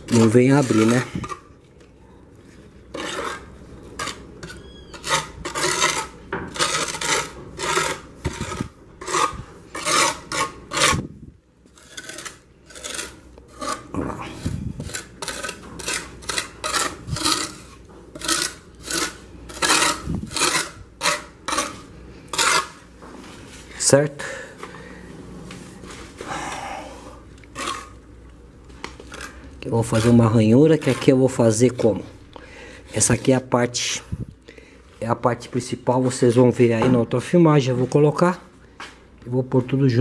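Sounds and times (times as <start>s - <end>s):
hand tool scraping mortar: 0.0s - 1.5s, 2.9s - 11.1s, 11.7s - 22.8s, 29.0s - 32.1s.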